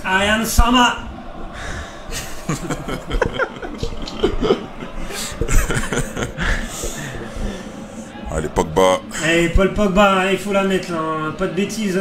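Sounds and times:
men laughing: 0:01.5 - 0:08.6.

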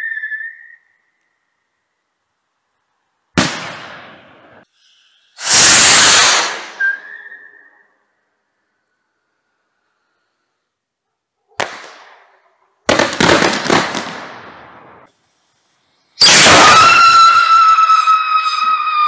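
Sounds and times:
whistle rocket whistling: 0:00.0 - 0:01.5, 0:05.4 - 0:08.0, 0:16.2 - 0:19.0
firework bang: 0:03.4 - 0:04.3, 0:05.4 - 0:06.8, 0:16.2 - 0:17.5
firework crackling burst: 0:03.4 - 0:07.0, 0:12.9 - 0:19.0.

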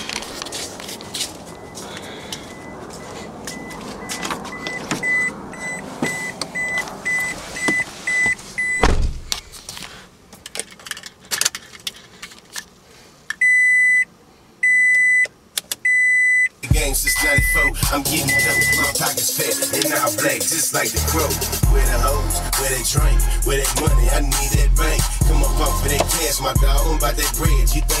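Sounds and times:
clicks and handling noise: 0:00.0 - 0:02.5, 0:09.3 - 0:13.4
car warning chime beeping: 0:01.5 - 0:01.8, 0:02.4 - 0:09.0, 0:13.4 - 0:19.0
heavy thump: 0:08.8 - 0:09.4.

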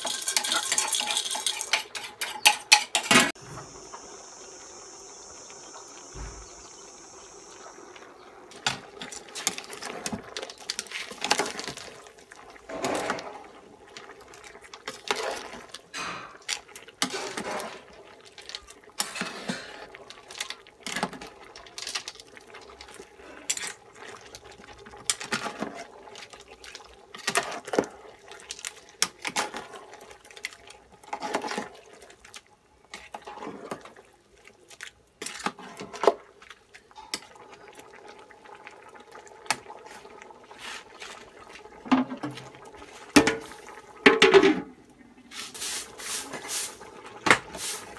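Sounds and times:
metal spoon stirring soup pot: 0:00.0 - 0:03.4.

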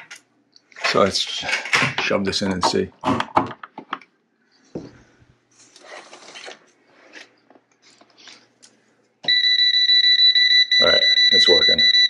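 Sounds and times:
rapid high-pitched beeping: 0:09.3 - 0:12.0.

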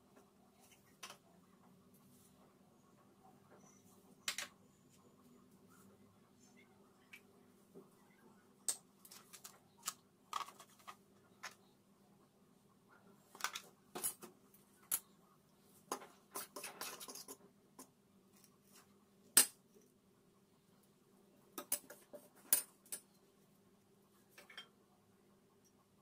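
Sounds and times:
faint low hum: 0:00.0 - 0:26.0.

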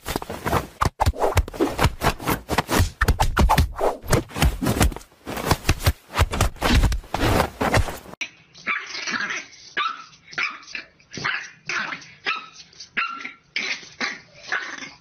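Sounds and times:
puppy barking and yipping: 0:08.6 - 0:14.7.

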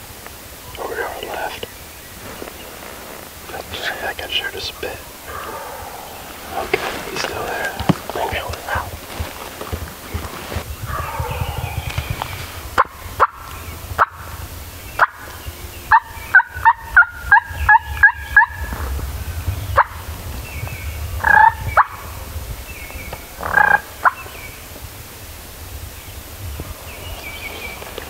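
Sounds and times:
gobbler calls: 0:03.5 - 0:14.4, 0:15.0 - 0:18.9, 0:19.7 - 0:20.1, 0:21.2 - 0:22.1, 0:23.2 - 0:24.4
turkey clucks: 0:03.6 - 0:14.3
turkey yelps: 0:10.9 - 0:12.2, 0:15.9 - 0:18.7.

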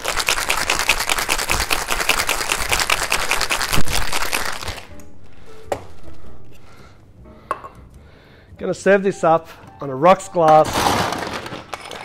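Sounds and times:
ice rattling in cocktail shaker: 0:00.0 - 0:04.9, 0:10.5 - 0:12.0.

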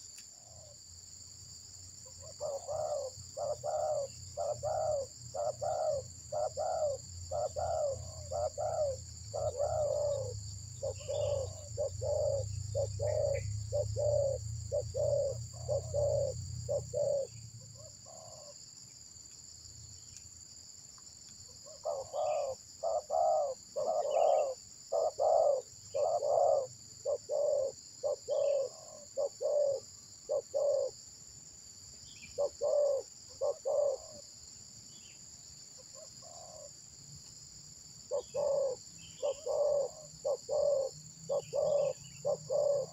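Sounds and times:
high insect drone: 0:00.0 - 0:42.9
dove cooing: 0:02.2 - 0:18.6, 0:21.6 - 0:31.0, 0:32.3 - 0:34.2, 0:38.1 - 0:42.9.

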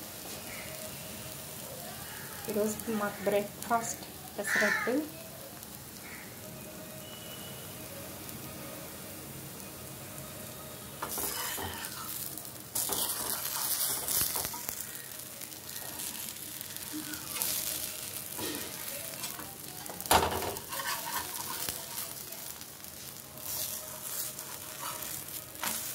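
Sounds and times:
batter sizzling in oil: 0:00.0 - 0:25.9
spatula scraping pan: 0:11.0 - 0:12.1, 0:12.8 - 0:14.7, 0:18.3 - 0:22.2, 0:23.4 - 0:25.9
spatula striking pan: 0:12.8 - 0:14.8, 0:18.3 - 0:21.7.

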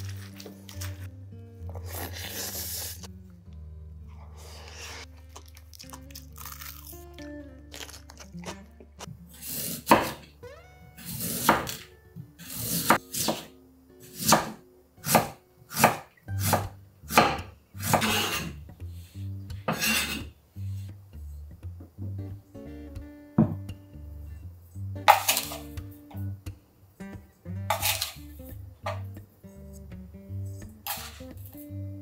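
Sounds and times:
soft background music: 0:00.0 - 0:32.0
knife cutting on wooden board: 0:14.2 - 0:18.5, 0:19.7 - 0:20.3, 0:27.7 - 0:28.2.

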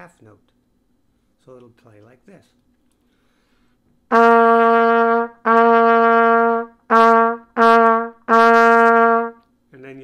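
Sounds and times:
trumpet playing repeated note: 0:04.1 - 0:09.4.

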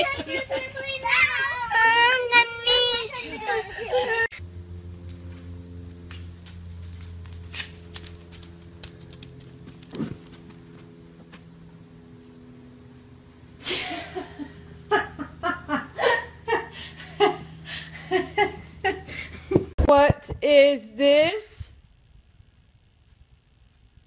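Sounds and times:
person laughing: 0:00.0 - 0:01.0, 0:13.6 - 0:19.7
steady low hum: 0:00.0 - 0:24.0.

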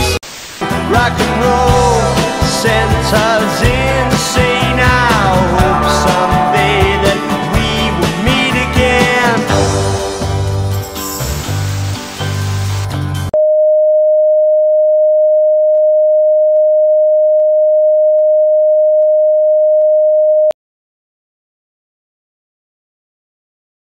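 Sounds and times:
tv static hiss: 0:00.0 - 0:01.0
rock band music: 0:00.0 - 0:13.3.

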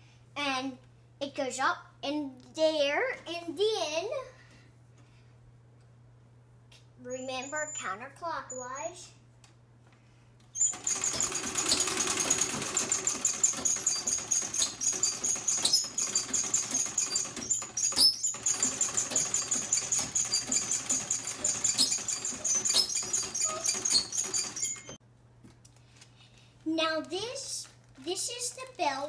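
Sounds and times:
sewing machine clattering: 0:10.6 - 0:25.0.

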